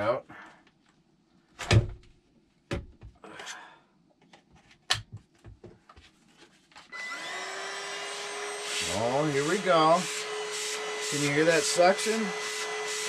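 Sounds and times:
vacuum motor starting: 0:07.0 - 0:13.0.

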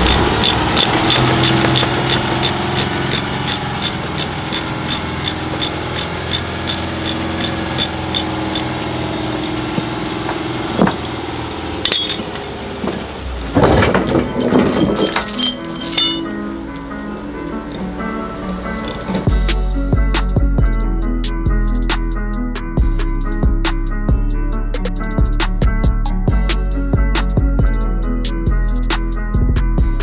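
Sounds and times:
rapid even ticking: 0:00.0 - 0:11.5
loud metal clanks: 0:00.0 - 0:16.4
truck diesel engine running: 0:00.0 - 0:22.0.

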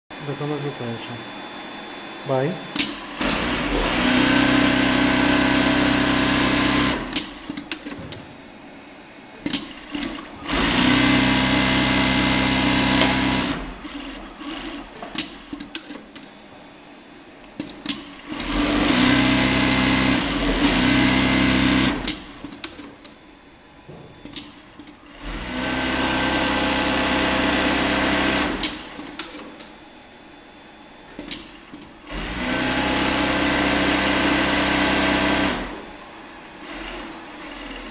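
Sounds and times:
sewing machine sewing: 0:02.8 - 0:08.1, 0:09.4 - 0:16.1, 0:17.6 - 0:23.0, 0:24.3 - 0:29.6, 0:31.3 - 0:35.9, 0:36.6 - 0:37.9.

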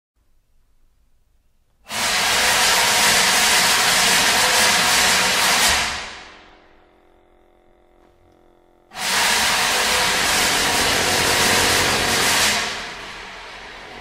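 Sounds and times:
faint held tones: 0:06.2 - 0:09.0.

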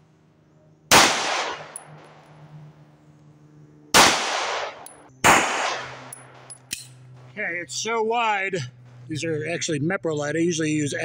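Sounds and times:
pistol shots echoing: 0:00.9 - 0:02.3, 0:03.9 - 0:06.8.

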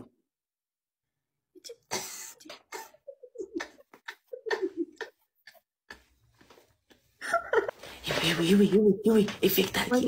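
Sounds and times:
person laughing: 0:01.8 - 0:06.1, 0:07.1 - 0:07.8.

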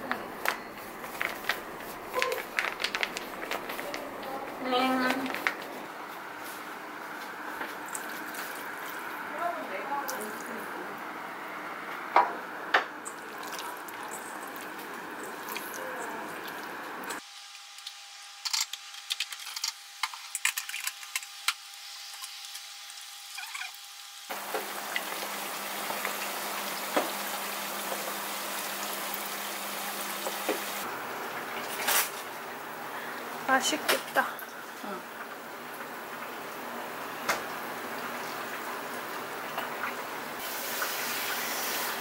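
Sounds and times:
steady noise with low hum: 0:00.0 - 0:23.3
chicken frying with pops: 0:20.0 - 0:32.2.

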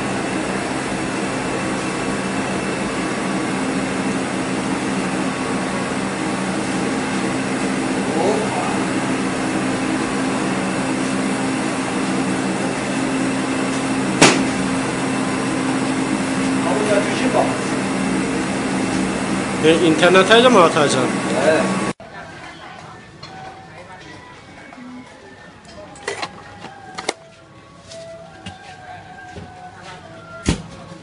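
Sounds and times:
rotating griddle motor hum: 0:00.0 - 0:22.0
sharp knock: 0:14.2 - 0:14.5.

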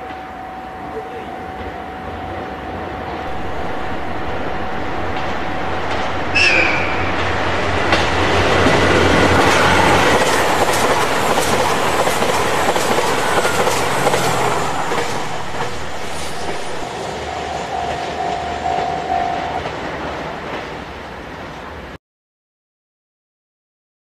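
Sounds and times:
train wheels clicking over rail joints: 0:03.2 - 0:21.8.

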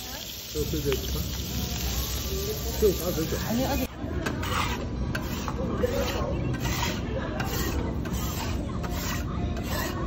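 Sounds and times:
metal spatula scraping griddle: 0:03.7 - 0:10.0.

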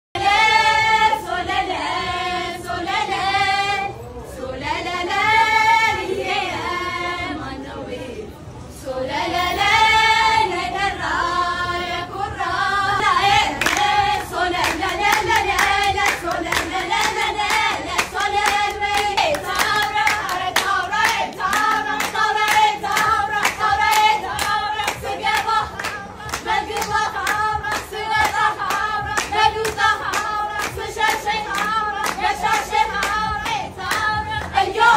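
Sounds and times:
group of women singing: 0:00.2 - 0:34.9
rhythmic hand clapping: 0:13.2 - 0:34.9.

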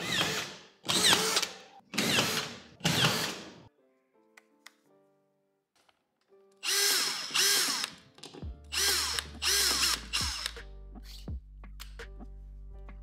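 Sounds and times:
background music with low tones: 0:00.0 - 0:13.0
cordless screwdriver driving screws: 0:06.6 - 0:08.0, 0:08.7 - 0:10.6.

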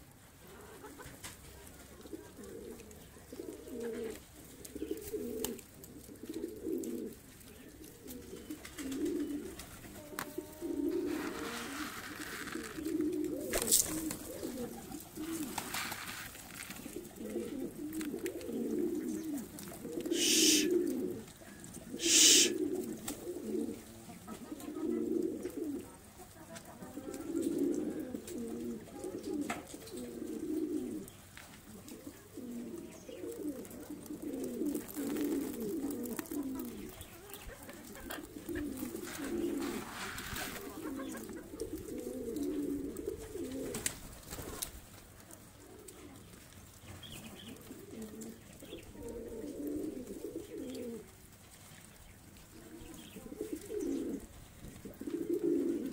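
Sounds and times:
pigeons cooing: 0:00.0 - 0:55.9
short rustling hisses: 0:11.0 - 0:12.8, 0:20.1 - 0:20.8, 0:22.0 - 0:22.7, 0:39.1 - 0:40.7.

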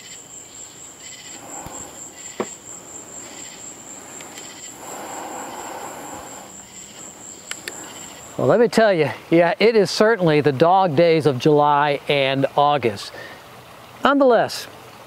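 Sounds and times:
pulsed insect chirps: 0:00.0 - 0:08.6
high-pitched insect trill: 0:00.0 - 0:08.8.

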